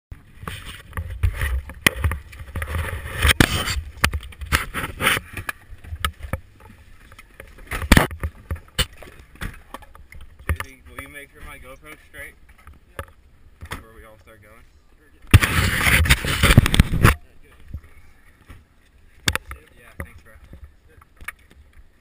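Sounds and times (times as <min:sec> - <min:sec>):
camera handling bumps and rubs: 0:00.4 - 0:06.5, 0:07.4 - 0:10.8, 0:15.3 - 0:17.2.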